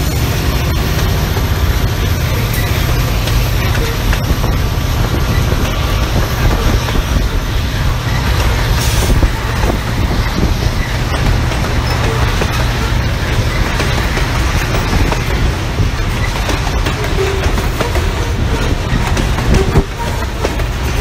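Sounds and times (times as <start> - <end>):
rail clicks: 0.0 - 21.0
train wheels rumbling on rails: 0.0 - 21.0.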